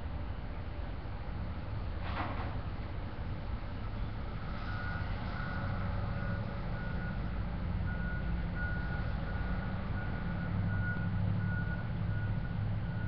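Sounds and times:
truck reversing alarm beeping: 0:04.3 - 0:13.0.

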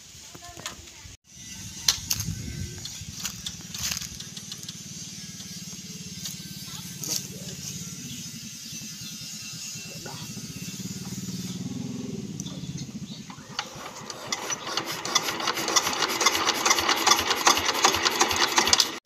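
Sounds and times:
diesel tractor engine running: 0:02.1 - 0:08.1, 0:09.9 - 0:19.0.

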